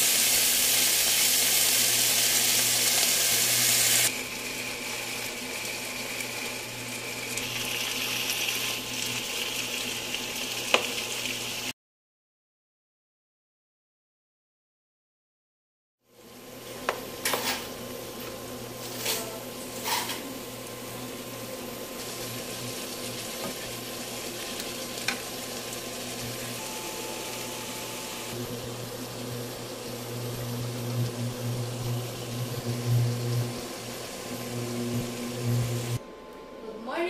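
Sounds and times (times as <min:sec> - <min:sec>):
food sizzling in a pan: 0:00.0 - 0:11.8, 0:16.1 - 0:36.0
steady low hum: 0:26.6 - 0:37.0.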